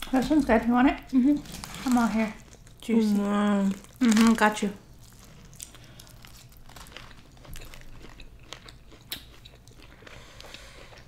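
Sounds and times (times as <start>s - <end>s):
chewing crunchy chicken: 3.5s - 11.0s.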